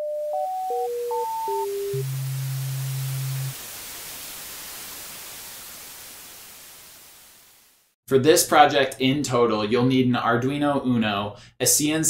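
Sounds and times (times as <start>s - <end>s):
static-like hiss: 1.1s - 8.0s
steady low hum: 1.7s - 3.9s.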